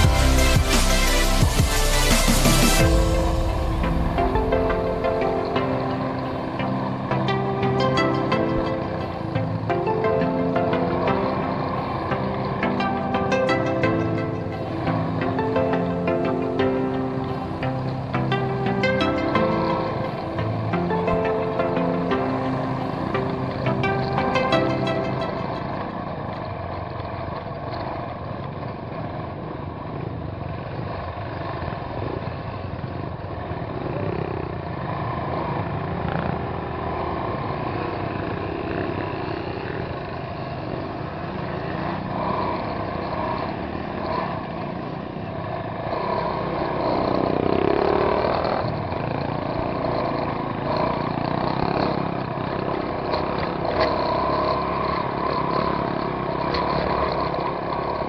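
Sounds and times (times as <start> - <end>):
motorcycle engine revving: 29.8 - 58.0.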